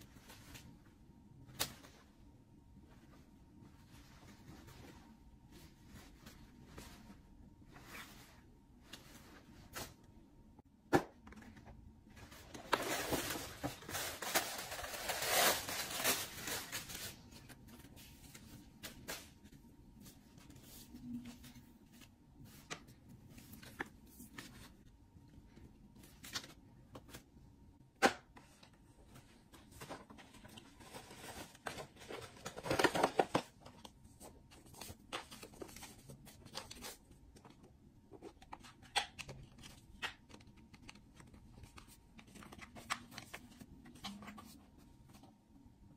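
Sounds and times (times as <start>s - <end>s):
paper bag and tissue rustling: 12.2s - 21.8s.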